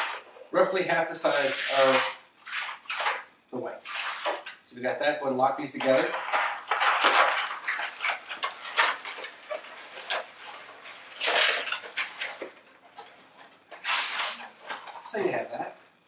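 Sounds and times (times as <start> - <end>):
balloons squeaking and scraping: 0.0 - 4.7, 5.8 - 15.8.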